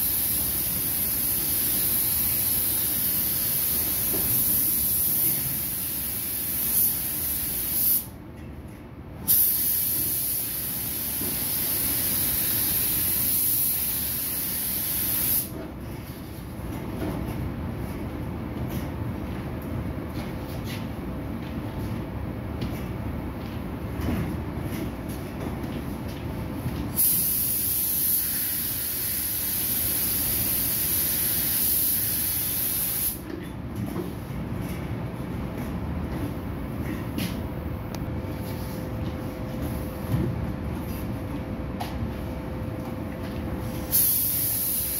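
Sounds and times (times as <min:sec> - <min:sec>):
spray gun hissing: 0:00.0 - 0:08.1, 0:09.3 - 0:15.5, 0:27.0 - 0:33.2, 0:43.9 - 0:44.9
paint spray gun hissing: 0:27.0 - 0:33.2, 0:43.9 - 0:44.9.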